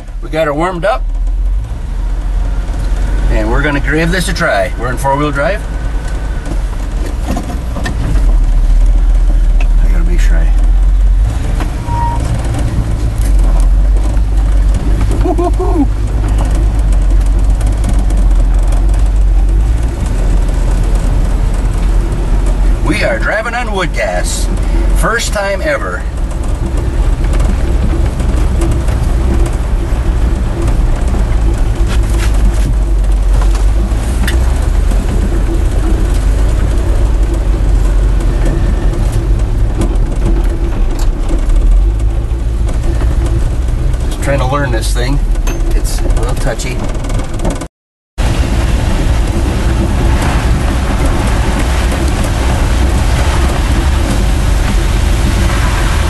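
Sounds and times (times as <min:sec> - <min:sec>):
road noise: 0:00.0 - 0:56.0
truck engine rumbling: 0:00.0 - 0:56.0
light clicks and rattles: 0:05.2 - 0:47.7.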